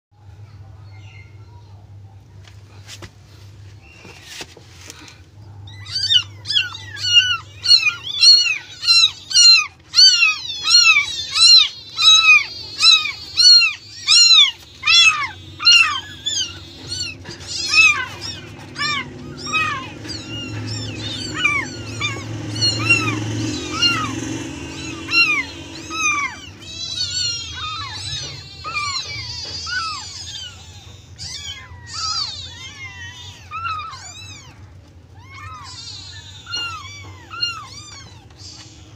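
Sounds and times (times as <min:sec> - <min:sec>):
kitten mewing: 0:05.0 - 0:38.9.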